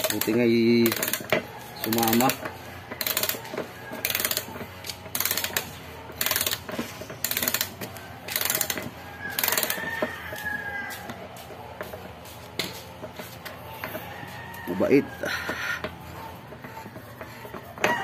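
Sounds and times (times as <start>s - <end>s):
metal cap scraping rasps: 0.0s - 10.2s, 11.8s - 18.0s
rooster crowing: 1.4s - 4.8s, 7.8s - 12.0s, 13.2s - 18.0s.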